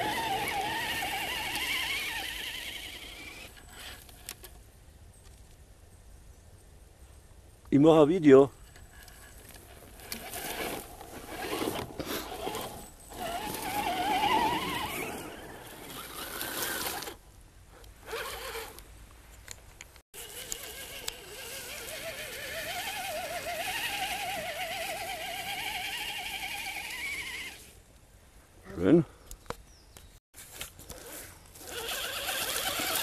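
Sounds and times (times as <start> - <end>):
electric motor and gearbox whining: 0.0 - 4.4, 9.4 - 17.2, 18.0 - 18.8, 20.2 - 27.8, 30.5 - 33.0.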